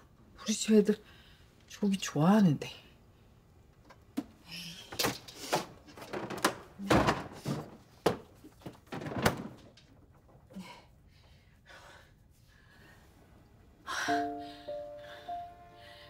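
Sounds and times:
thunks of handling fridge containers: 0:05.6 - 0:09.8.

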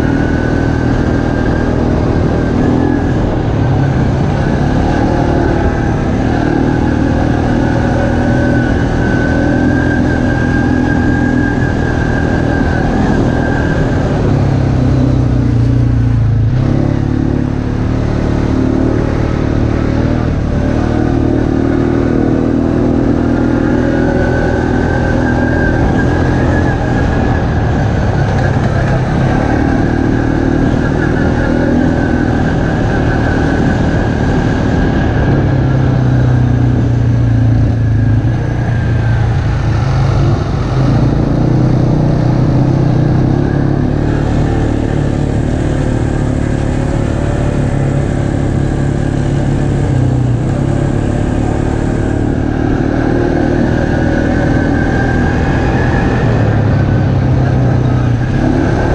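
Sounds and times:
atv engine running: 0:00.0 - 0:58.9
trail noise: 0:00.0 - 0:58.9
wind: 0:00.0 - 0:58.9.

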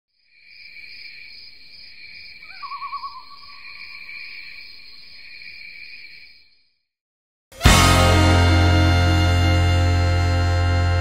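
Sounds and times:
insects chirping: 0:00.1 - 0:06.8
owl quavering call: 0:02.4 - 0:04.0.

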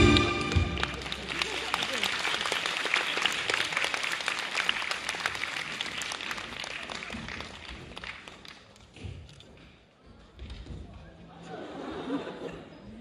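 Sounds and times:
audience applause: 0:00.0 - 0:08.8.

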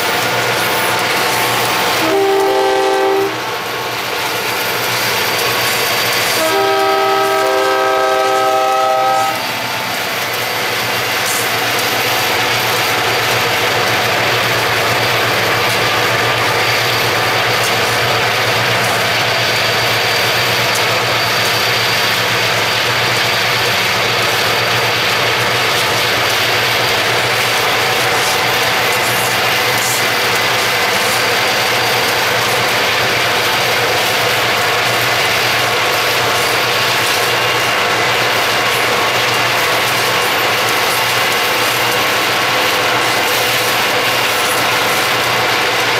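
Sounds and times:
train rumble: 0:00.0 - 0:45.9
locomotive air horn blast: 0:02.0 - 0:03.4, 0:06.3 - 0:09.7.

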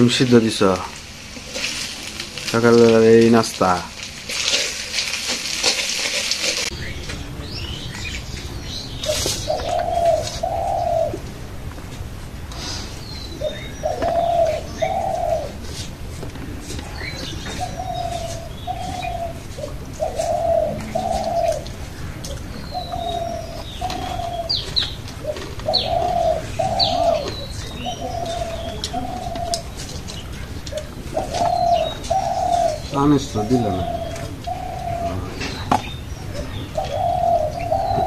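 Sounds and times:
small birds chirping: 0:06.4 - 0:11.3, 0:12.5 - 0:38.0
dove cooing: 0:09.0 - 0:11.4, 0:13.3 - 0:15.9, 0:16.6 - 0:38.0.

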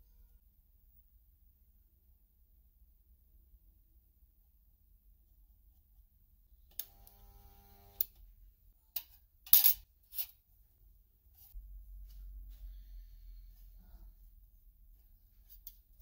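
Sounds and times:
steady hum: 0:06.7 - 0:08.1.

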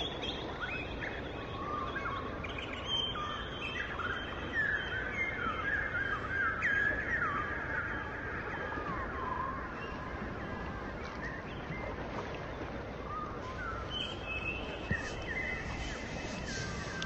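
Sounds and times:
steady rushing noise: 0:14.1 - 0:17.0.

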